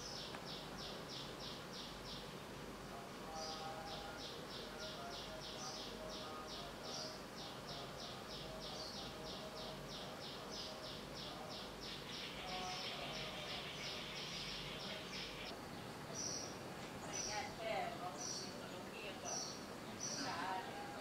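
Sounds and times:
small bird chirping: 0.0 - 2.4, 3.3 - 20.7.

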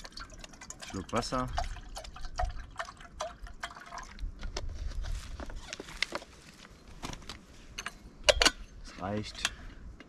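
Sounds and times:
water glugging into metal kettle: 0.0 - 4.2.

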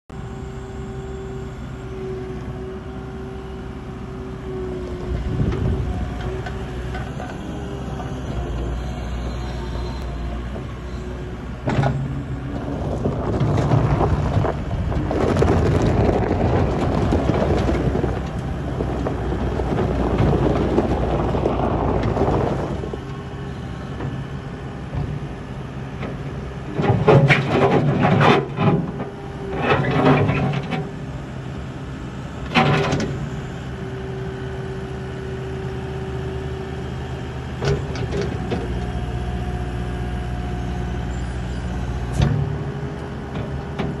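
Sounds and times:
diesel engine running: 0.1 - 44.0
tyres on gravel: 11.8 - 31.0.

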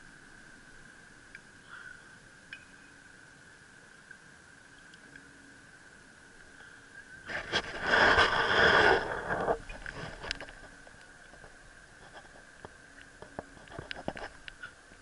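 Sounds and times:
faint steady high tone: 0.0 - 7.3.

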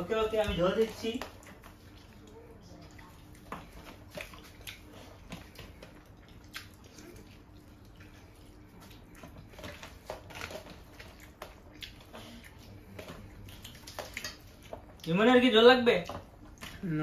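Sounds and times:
hands squishing rice and curry: 0.0 - 17.0
chewing: 0.8 - 15.2.

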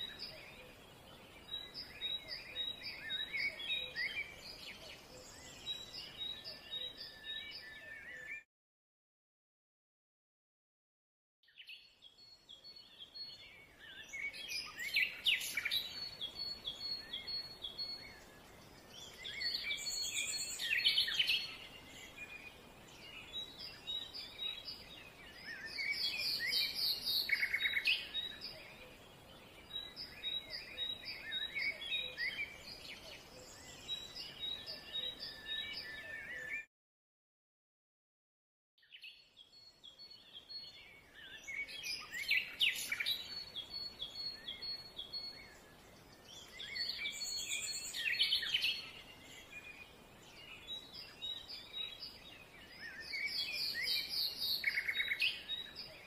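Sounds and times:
faint outdoor hiss: 0.0 - 8.3, 11.5 - 36.5, 38.9 - 56.0
birds singing and chirping: 0.0 - 8.4, 11.4 - 36.7, 38.8 - 56.0.

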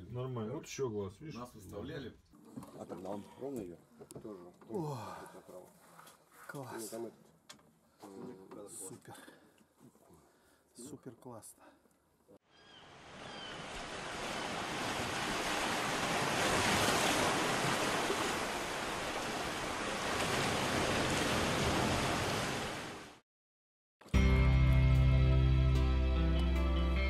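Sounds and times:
sea water washing and rushing: 12.9 - 23.2.

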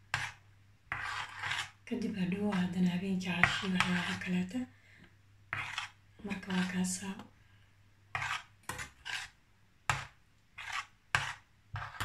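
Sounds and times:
metal spoon scraping saucepan: 8.1 - 9.4, 10.6 - 12.0.

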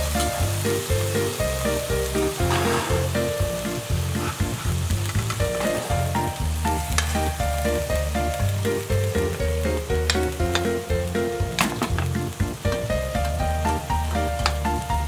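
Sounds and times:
background music with bass line: 0.0 - 15.0
patties sizzling in a frying pan: 0.0 - 15.0
metal turner scraping pan: 2.3 - 3.4, 4.1 - 6.3.

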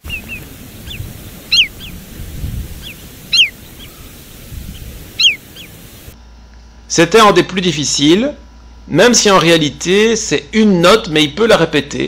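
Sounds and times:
other bird calls: 0.0 - 6.2
wader flight call: 0.0 - 6.2
low background rumble: 0.0 - 7.0.

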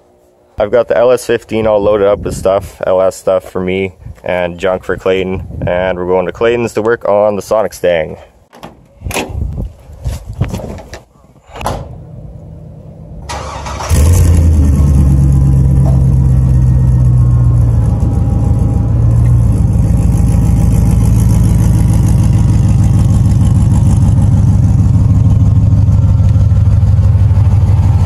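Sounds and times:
pickup engine cranking and idling: 11.7 - 28.0.

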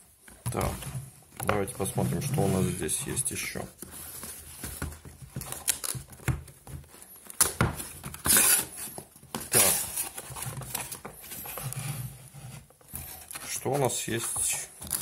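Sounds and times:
cardboard packaging being handled: 0.2 - 15.0
cardboard sliding against cardboard: 1.6 - 5.0, 8.3 - 14.4.

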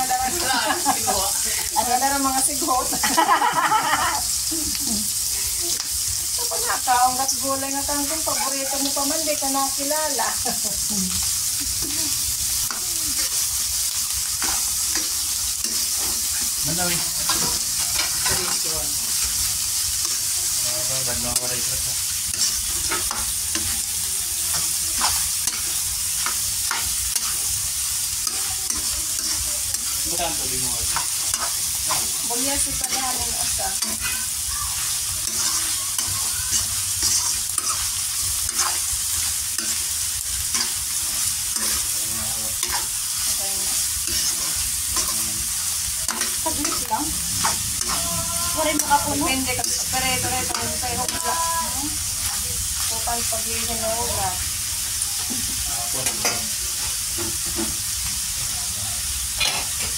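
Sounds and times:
food sizzling in a hot pan: 0.0 - 59.9
spatula scraping a pan: 11.2 - 20.4, 21.4 - 54.1.

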